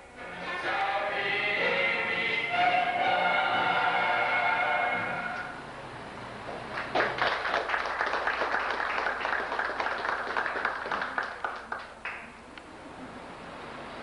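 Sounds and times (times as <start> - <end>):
crowd applauding: 6.7 - 12.4.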